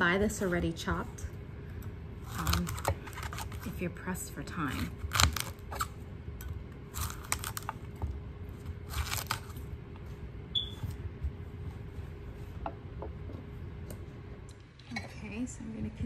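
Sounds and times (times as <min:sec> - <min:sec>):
crisp crunching and snapping: 0:02.2 - 0:03.8, 0:04.9 - 0:06.0, 0:06.9 - 0:07.9, 0:08.8 - 0:09.6.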